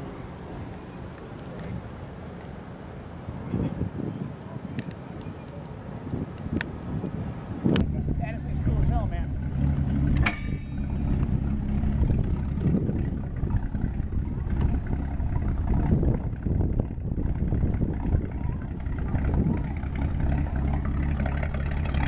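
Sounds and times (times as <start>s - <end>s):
engine idling: 7.8s - 22.0s.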